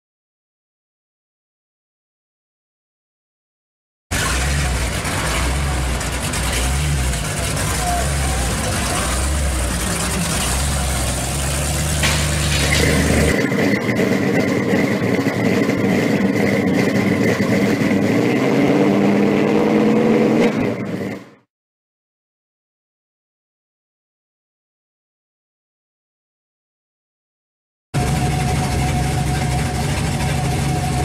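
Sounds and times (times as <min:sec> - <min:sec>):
car engine deep rumble: 0:04.1 - 0:21.4, 0:28.0 - 0:31.0
car engine running: 0:04.1 - 0:21.4, 0:28.0 - 0:31.0.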